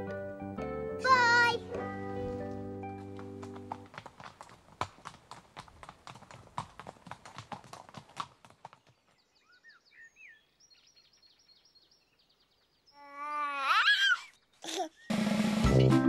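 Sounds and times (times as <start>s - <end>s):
hooves clip-clopping on dirt: 1.0s - 9.4s
baby's voice: 12.9s - 15.0s.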